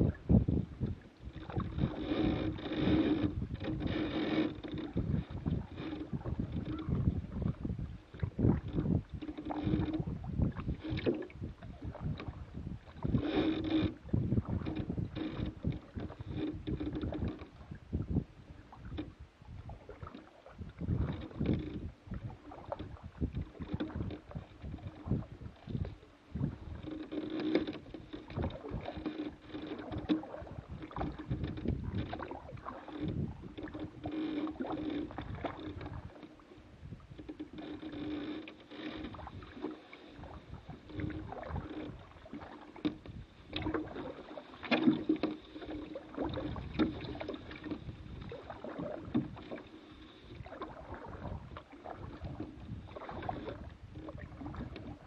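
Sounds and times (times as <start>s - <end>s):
paddle strokes splashing water: 0.0s - 55.0s
paddle knocks: 37.1s - 49.6s.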